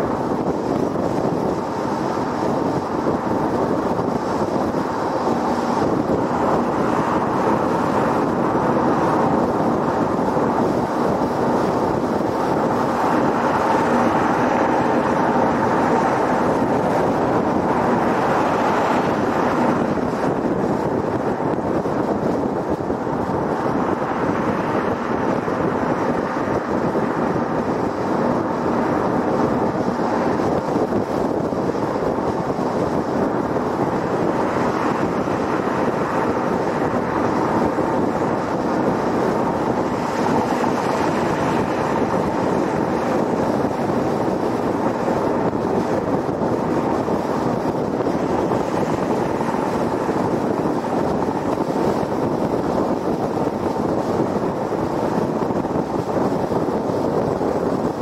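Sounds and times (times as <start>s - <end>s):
car tyre and wind noise: 0.0s - 58.0s.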